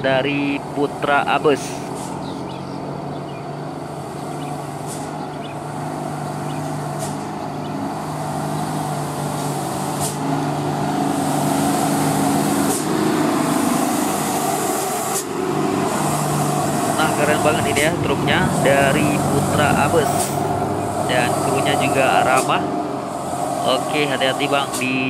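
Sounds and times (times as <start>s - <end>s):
truck diesel engine passing: 0.0s - 25.0s.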